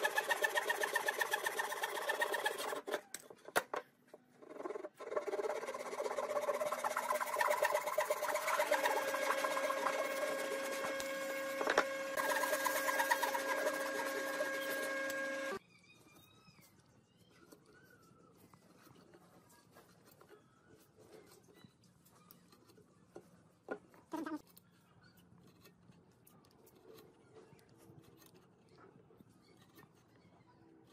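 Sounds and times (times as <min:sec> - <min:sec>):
hand saw cutting wood: 0:00.0 - 0:03.0, 0:04.6 - 0:15.6
pen scratching on wood: 0:04.4 - 0:15.0.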